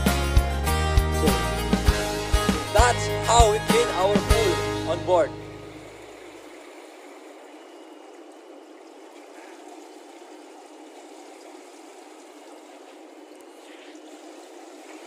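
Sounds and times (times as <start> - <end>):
water rushing in pool: 5.4 - 15.0.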